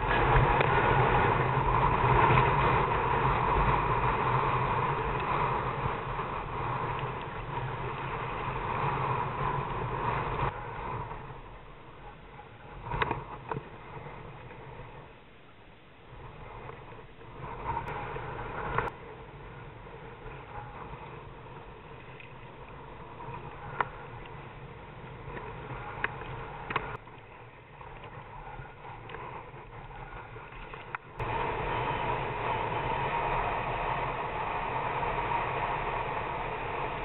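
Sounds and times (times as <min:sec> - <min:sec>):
choppy water: 0:00.0 - 0:37.0
wind buffeting microphone: 0:00.0 - 0:37.0.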